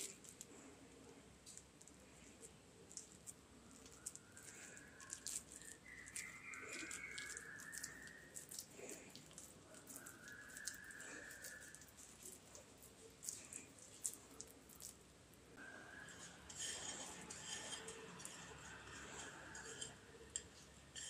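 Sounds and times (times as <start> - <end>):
wet hands squelching bread: 0.0 - 15.6.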